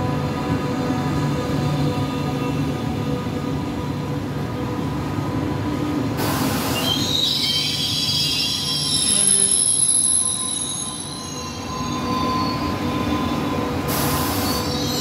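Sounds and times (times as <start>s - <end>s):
high metallic squeal: 6.8s - 15.0s.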